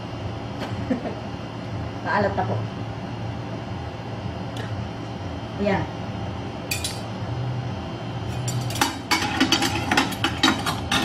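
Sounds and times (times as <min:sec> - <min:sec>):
steady low hum: 0:00.0 - 0:11.0
metal utensils clinking: 0:08.3 - 0:11.0.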